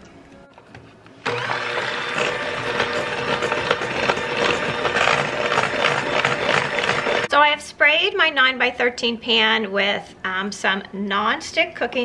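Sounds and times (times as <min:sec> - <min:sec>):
electric hand mixer running: 0:01.2 - 0:07.3.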